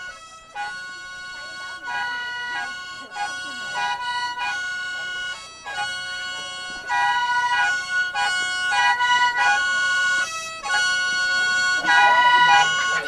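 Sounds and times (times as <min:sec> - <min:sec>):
free-reed mouth organ chords: 0:07.4 - 0:13.0.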